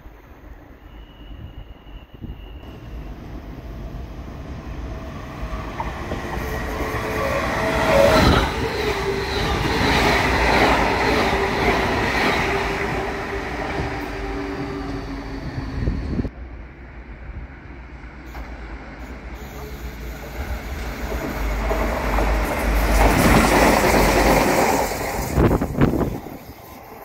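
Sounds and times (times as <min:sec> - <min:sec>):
train passing: 0:00.0 - 0:27.0.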